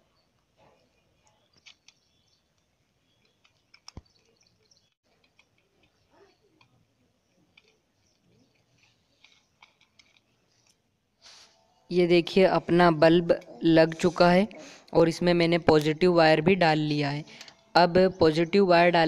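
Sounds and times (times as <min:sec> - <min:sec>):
small wire clicks: 0:01.5 - 0:04.4, 0:07.5 - 0:10.8.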